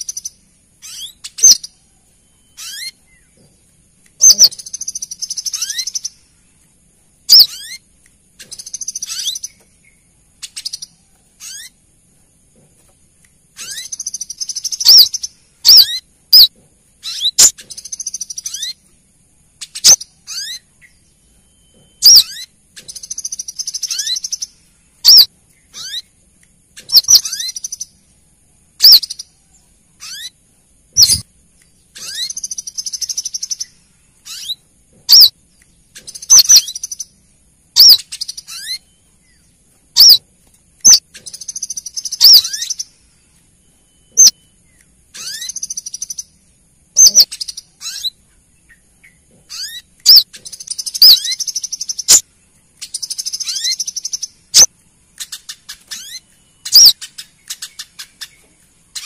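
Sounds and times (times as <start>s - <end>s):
high bird twittering: 0.0s - 3.5s, 4.2s - 6.4s, 7.3s - 11.8s, 13.5s - 18.9s, 19.6s - 28.0s, 28.8s - 40.2s, 40.8s - 43.2s, 44.0s - 59.0s
bird calls sweeping downward: 31.0s - 31.3s.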